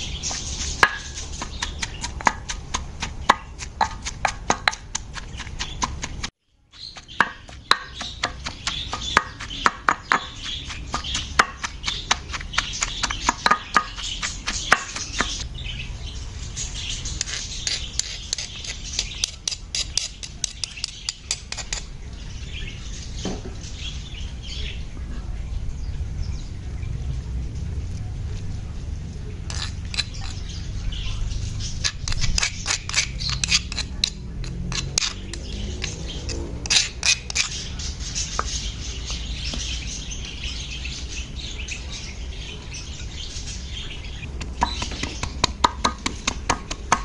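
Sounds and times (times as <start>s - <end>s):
birds chirping: 0.0s - 47.0s
pestle pounding in stone mortar: 0.1s - 15.4s, 17.2s - 21.9s, 31.7s - 37.6s, 44.3s - 47.0s.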